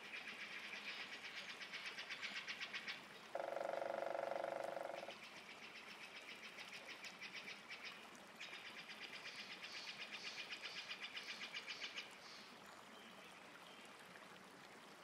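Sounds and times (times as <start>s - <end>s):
lower louder animal trill: 3.4s - 5.1s.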